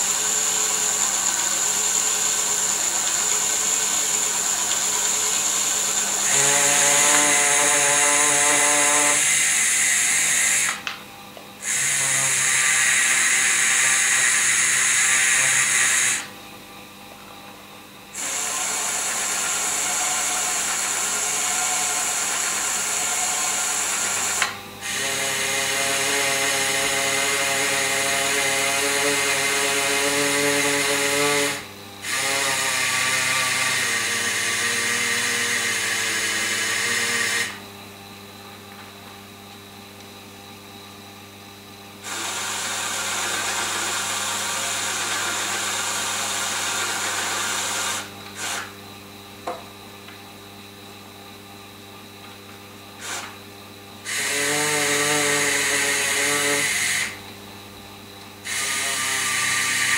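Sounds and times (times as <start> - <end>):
small electric motors whining: 0.0 - 10.9, 11.6 - 16.3, 18.2 - 37.7, 42.0 - 48.7, 53.0 - 53.4, 54.0 - 57.2, 58.4 - 59.9.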